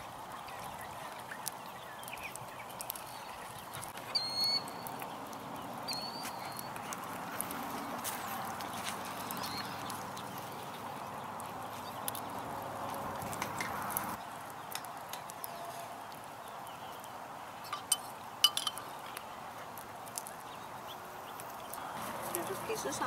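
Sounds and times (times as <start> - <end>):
wood fire crackling: 0.0 - 23.0
metal spoon clinking bowl: 17.7 - 18.8.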